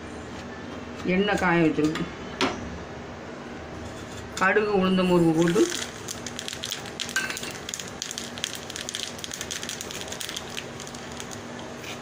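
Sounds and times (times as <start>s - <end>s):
seeds sizzling and popping in oil: 5.3s - 12.0s.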